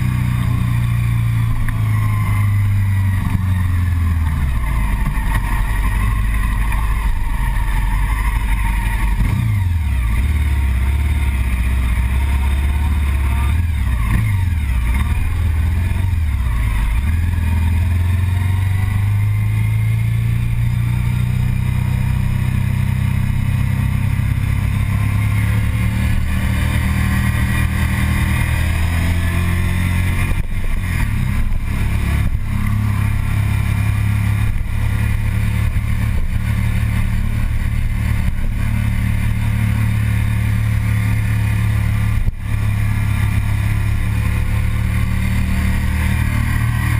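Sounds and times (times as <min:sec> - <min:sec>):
motorcycle engine while riding: 0:00.0 - 0:46.9.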